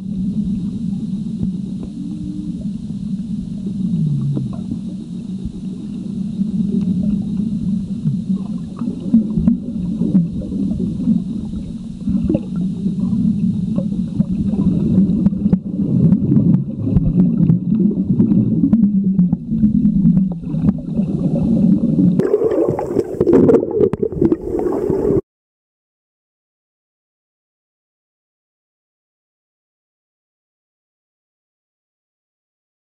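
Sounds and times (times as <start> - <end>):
underwater rumble and gurgling: 0.0 - 25.2.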